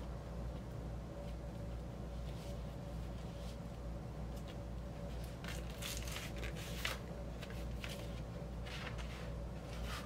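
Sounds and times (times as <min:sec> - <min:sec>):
steady low hum: 0:00.0 - 0:10.0
cardboard and paper rustling: 0:04.4 - 0:10.0.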